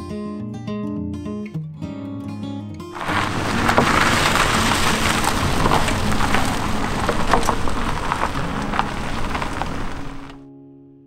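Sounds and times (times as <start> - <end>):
car tyres crunching over gravel: 3.0 - 10.4.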